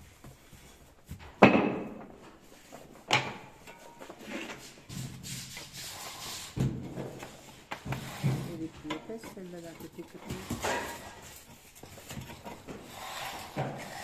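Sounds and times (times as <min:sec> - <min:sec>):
scraper scraping metal mould: 0:04.2 - 0:14.0.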